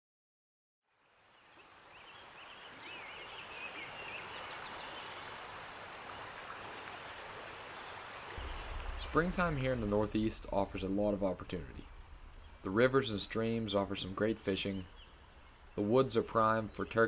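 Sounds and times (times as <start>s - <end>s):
steady rushing background: 8.4s - 15.8s.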